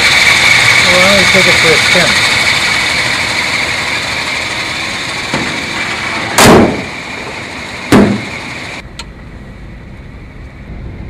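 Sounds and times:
heavy car doors slamming: 0:05.3 - 0:08.3.

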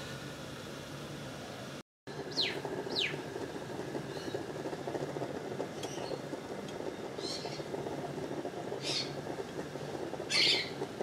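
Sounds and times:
camping stove burning: 0:00.0 - 0:11.0
small blower fan running: 0:00.0 - 0:11.0
bird chirps: 0:02.3 - 0:03.2.

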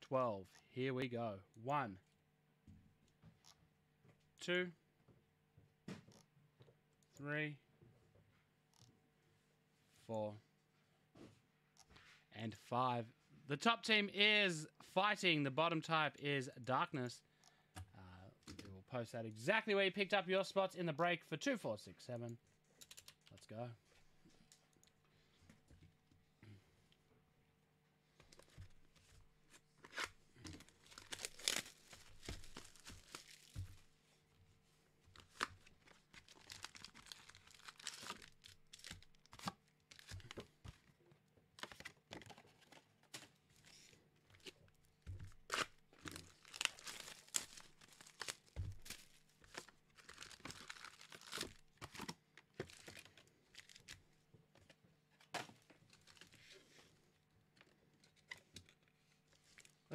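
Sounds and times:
foil packs crinkling: 0:30.6 - 0:33.8, 0:35.2 - 0:40.4, 0:45.5 - 0:54.0.

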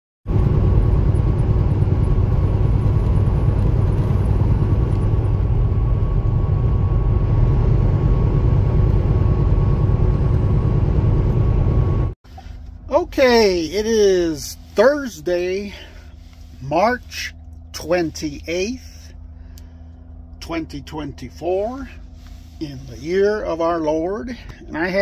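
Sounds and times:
thin steady whine: 0:00.3 - 0:25.0
truck engine and road drone: 0:00.3 - 0:25.0.

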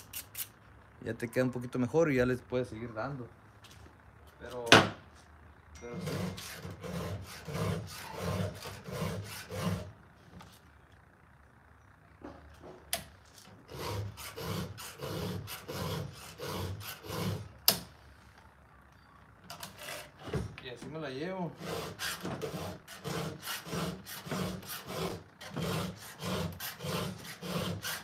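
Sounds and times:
file rasping on chainsaw chain: 0:05.8 - 0:09.9, 0:13.7 - 0:17.5, 0:21.6 - 0:28.0.

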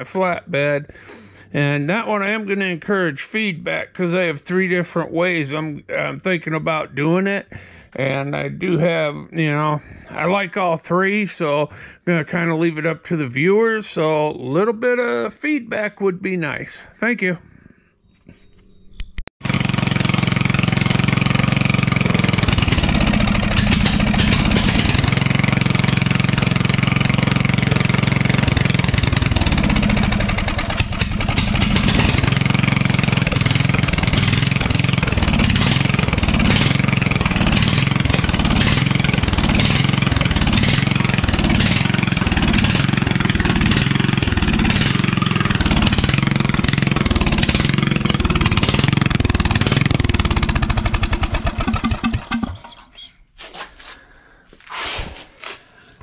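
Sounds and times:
garden tractor engine running: 0:19.4 - 0:53.1.

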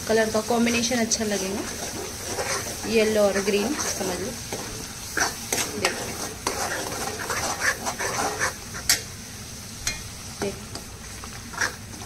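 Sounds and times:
paste sizzling in hot oil: 0:00.0 - 0:12.0
spoon scraping pan: 0:00.6 - 0:09.2, 0:09.8 - 0:12.0.

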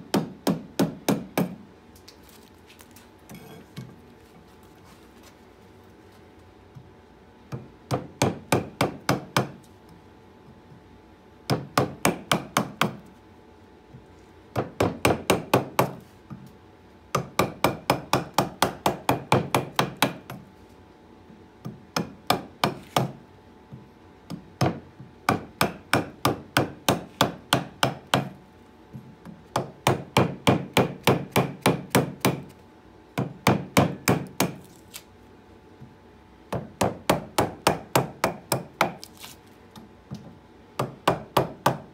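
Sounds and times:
mallet tapping carving gouge: 0:24.3 - 0:28.3, 0:40.8 - 0:41.9.

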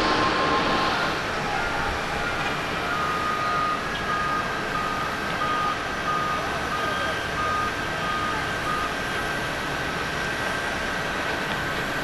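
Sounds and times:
jet engines rushing: 0:00.0 - 0:03.9
short electronic beeps: 0:03.0 - 0:09.0.

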